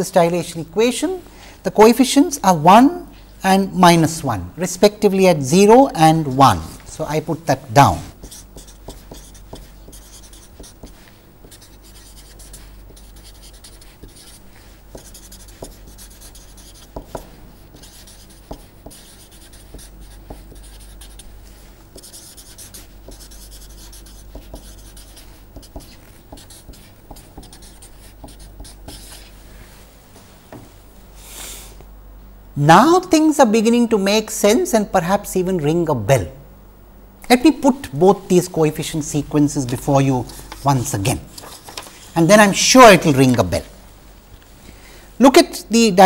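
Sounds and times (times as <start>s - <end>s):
steady low hum: 0.0s - 45.8s
marker scratching on paper: 6.2s - 29.4s.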